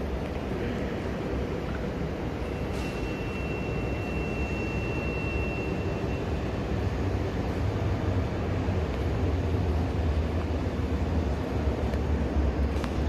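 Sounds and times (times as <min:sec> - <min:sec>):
low rumble of trains: 0:00.0 - 0:13.0
thin high whine: 0:02.3 - 0:06.8.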